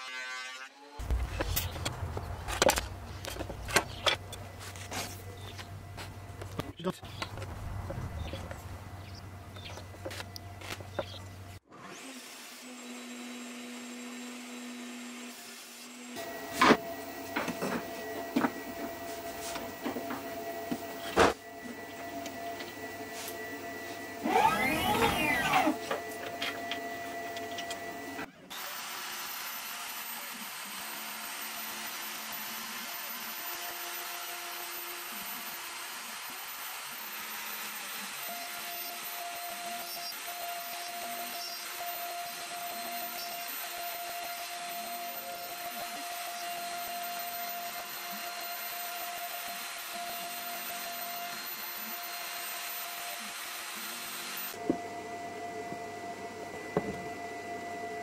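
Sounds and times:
router spindle whine: 0:00.0 - 0:58.0
bit cutting wood: 0:24.1 - 0:52.8.

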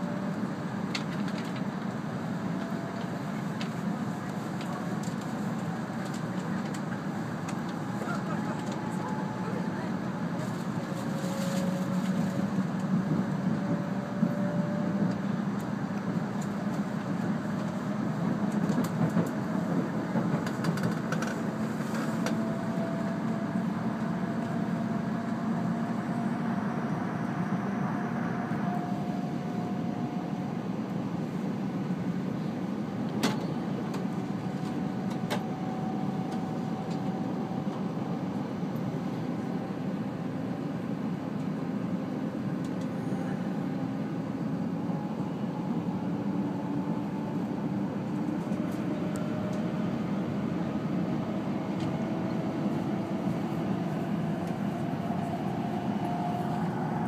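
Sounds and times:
train cabin rumble with whine: 0:00.0 - 0:57.0.

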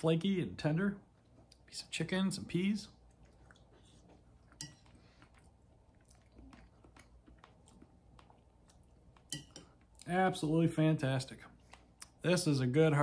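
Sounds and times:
quiet chewing: 0:01.1 - 0:01.9, 0:02.8 - 0:10.2, 0:11.4 - 0:12.2.

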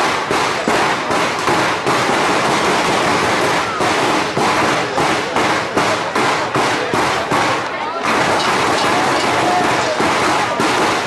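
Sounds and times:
cowbells clanging rhythmically: 0:08.3 - 0:10.1.

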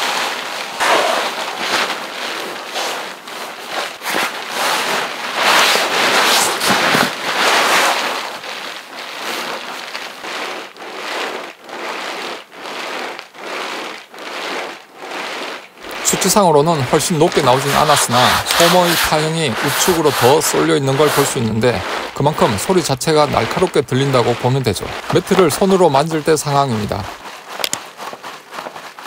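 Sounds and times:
sleeping pad crinkling: 0:00.0 - 0:29.0.

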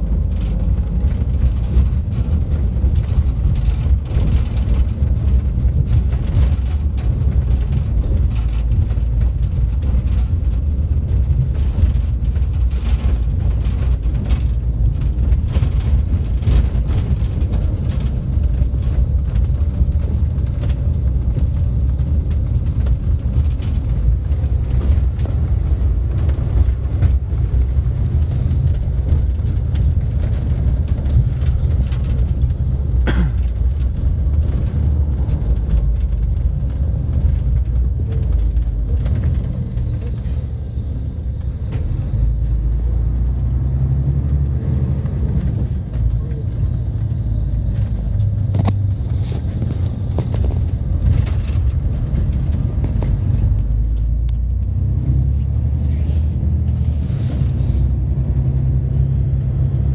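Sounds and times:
engine and road rumble: 0:00.0 - 0:59.9
light knocks and rattles: 0:45.0 - 0:54.9.

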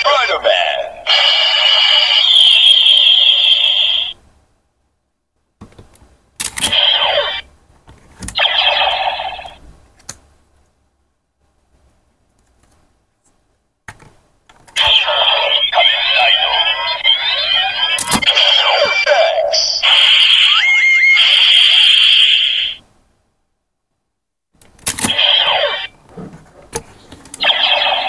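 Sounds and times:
toy belt electronic sound effects: 0:00.0 - 0:04.2, 0:06.6 - 0:07.4, 0:08.4 - 0:09.6, 0:14.8 - 0:22.8, 0:25.0 - 0:26.0, 0:27.4 - 0:28.0.

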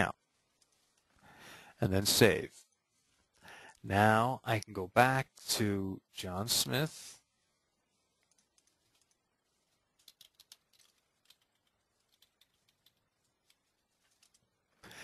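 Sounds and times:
computer keys clicking: 0:08.2 - 0:09.2, 0:10.0 - 0:14.5.

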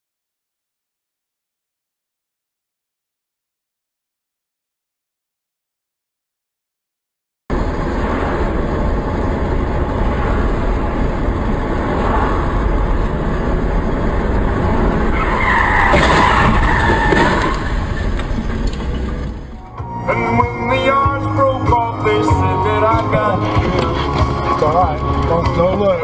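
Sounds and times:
car road and engine noise: 0:07.5 - 0:26.0
tyres squealing in a skid: 0:13.8 - 0:19.5.

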